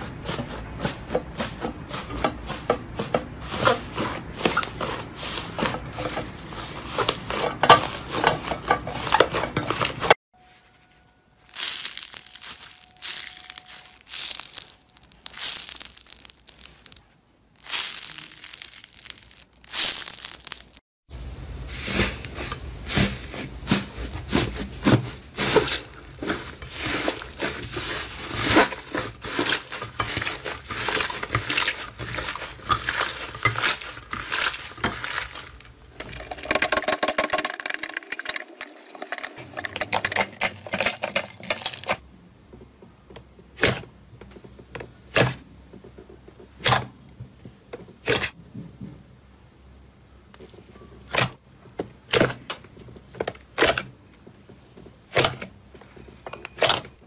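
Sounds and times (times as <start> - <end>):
crunchy slime crackling: 11.5 - 20.8, 25.3 - 36.5
slime kneaded with sticky squelches: 11.5 - 20.8, 21.9 - 36.5.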